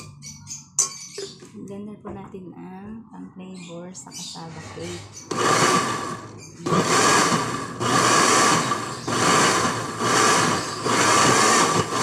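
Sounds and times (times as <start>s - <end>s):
blender pulsing: 5.2s - 12.0s.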